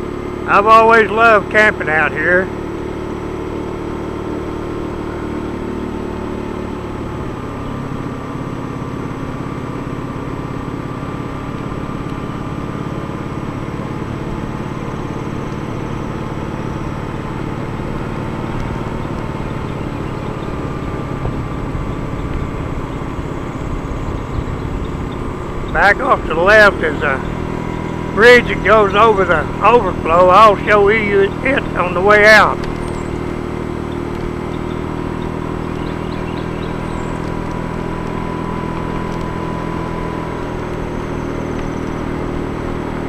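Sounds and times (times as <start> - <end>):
vehicle engine running: 0.0 - 43.0.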